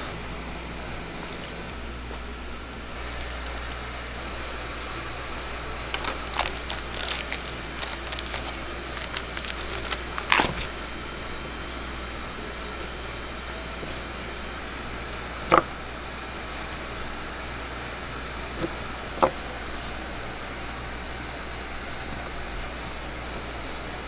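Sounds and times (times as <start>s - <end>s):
steady low hum: 0.0s - 24.0s
hot oil sizzling: 2.9s - 4.3s
plastic wrapper crackling: 3.0s - 3.7s, 5.9s - 10.7s.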